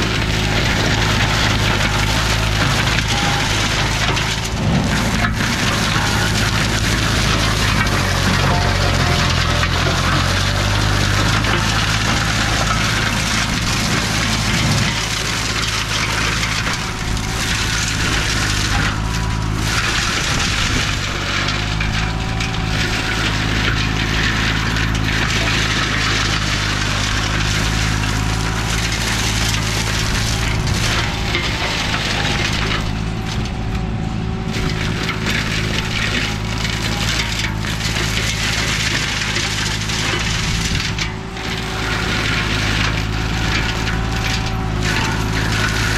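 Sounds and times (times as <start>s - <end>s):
mower engine hum: 0.0s - 45.9s
mulcher shredding branches: 0.0s - 45.9s.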